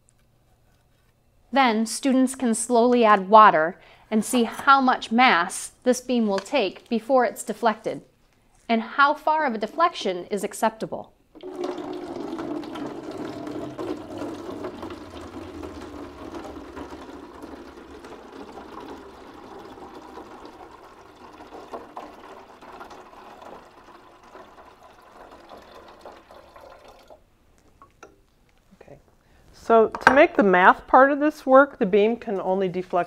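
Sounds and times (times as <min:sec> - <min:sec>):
water pouring through a funnel: 0:11.3 - 0:28.0.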